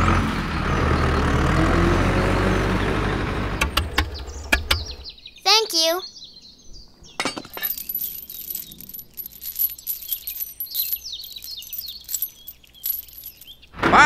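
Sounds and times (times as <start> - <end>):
small metal chain clinking: 7.2 - 13.7.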